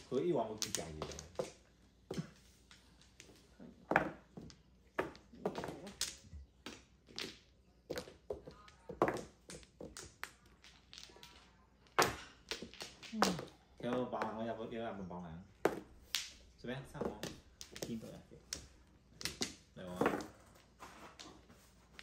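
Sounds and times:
mahjong tiles clacking: 0.0s - 14.8s, 15.6s - 22.0s.

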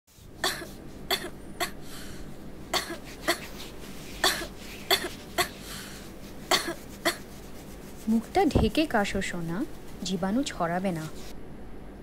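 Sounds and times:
child coughing: 0.4s - 1.8s, 2.7s - 3.5s, 4.2s - 5.6s, 6.5s - 7.3s.

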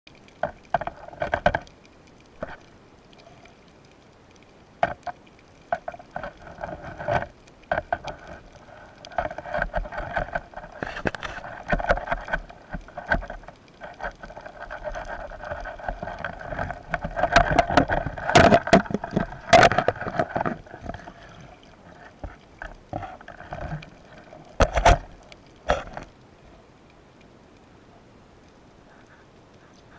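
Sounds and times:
underwater rushing: 0.1s - 29.9s
clicks and knocks: 9.0s - 21.4s, 22.1s - 26.1s.

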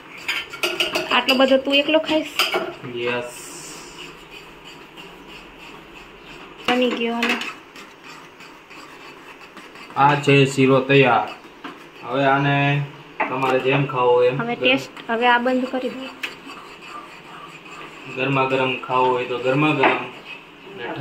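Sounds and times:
metal spoon scraping cooking pot: 0.0s - 12.5s, 14.6s - 20.5s.

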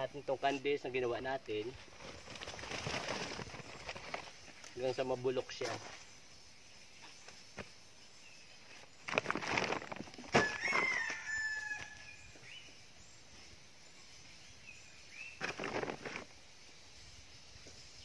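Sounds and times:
rustling plastic sack and fruit: 1.5s - 5.0s, 8.8s - 11.9s, 15.3s - 16.3s
rooster crowing: 10.3s - 12.3s.

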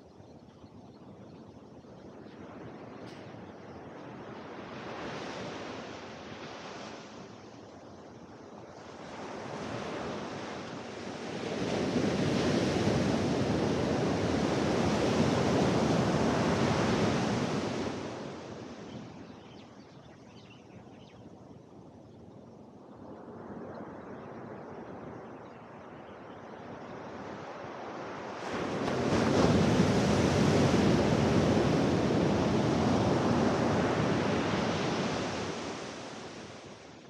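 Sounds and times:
ocean waves crashing on beach: 2.8s - 19.3s, 26.5s - 37.0s.

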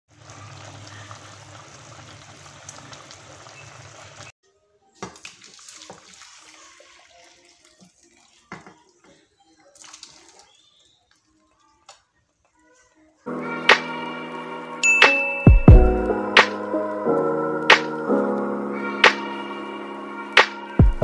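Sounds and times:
broth pouring and splashing: 0.1s - 4.4s, 5.0s - 11.9s
pot boiling and bubbling: 0.1s - 4.4s.

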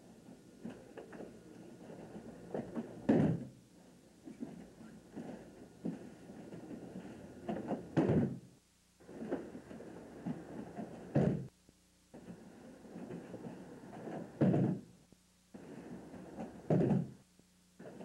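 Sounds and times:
soft shuffling: 0.0s - 3.1s, 3.8s - 8.0s, 9.0s - 17.2s
heavy thumps on padded mats: 2.6s - 3.5s, 7.6s - 8.5s, 10.2s - 11.5s, 14.4s - 14.9s, 16.6s - 17.2s.

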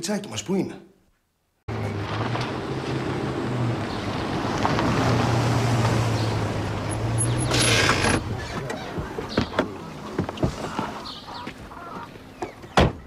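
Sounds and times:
car engine hum: 1.7s - 11.8s.

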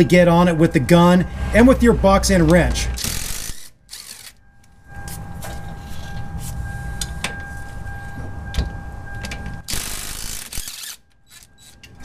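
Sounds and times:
impact gun motor whine: 0.7s - 6.3s, 8.5s - 12.0s
sharp clicks: 9.7s - 12.0s.

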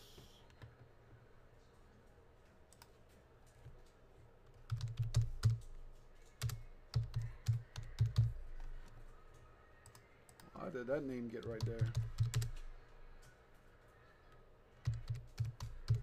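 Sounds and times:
keyboard typing: 2.7s - 10.5s, 11.4s - 13.4s, 14.3s - 16.0s.

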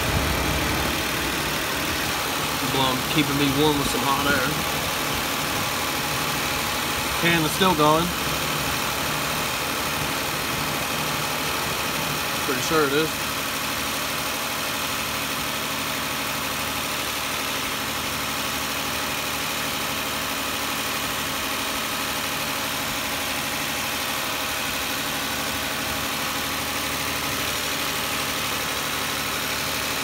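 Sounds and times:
car engine idling: 0.0s - 30.0s.

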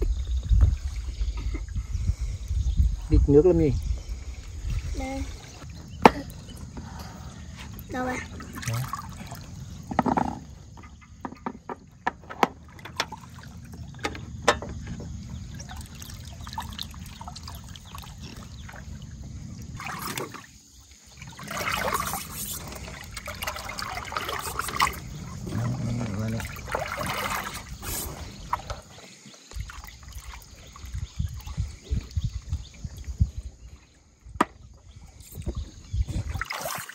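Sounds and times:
river water trickling and lapping: 0.2s - 2.7s, 3.6s - 36.9s.

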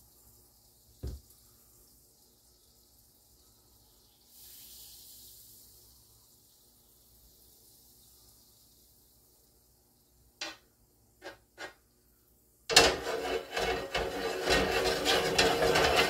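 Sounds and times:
hiss: 0.0s - 10.4s.

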